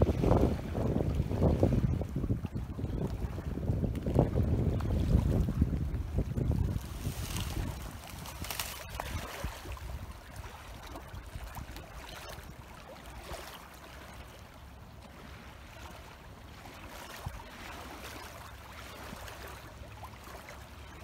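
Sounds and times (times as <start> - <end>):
wind buffeting microphone: 0.0 - 12.6
small waves lapping at shore: 0.0 - 21.0.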